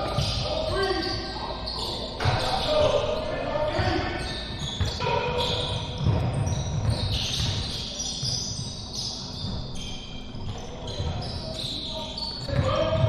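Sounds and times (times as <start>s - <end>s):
sneaker squeaks: 0.0s - 13.0s
basketball bouncing on hardwood: 6.0s - 8.3s.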